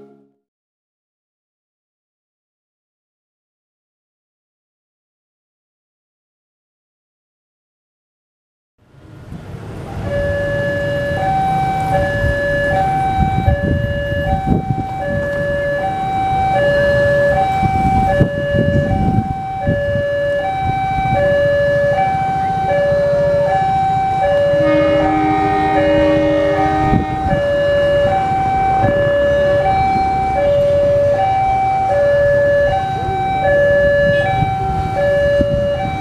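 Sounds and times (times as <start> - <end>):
railway warning alarm tones: 0.0 - 0.3, 9.8 - 36.0
diesel locomotive rumble: 8.8 - 36.0.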